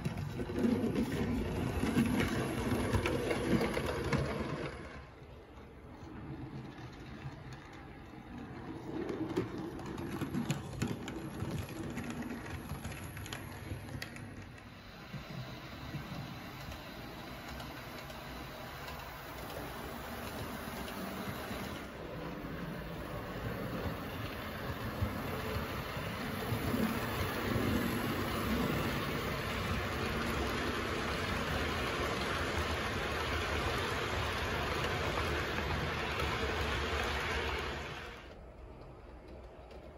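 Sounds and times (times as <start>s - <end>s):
wheels clicking over rail joints: 0.0s - 39.9s
model locomotive motor hum: 9.8s - 38.4s.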